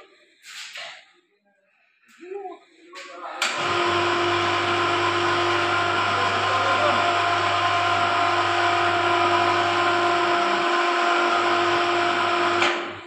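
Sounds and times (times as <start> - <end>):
hoist motor whining: 3.4 - 13.0.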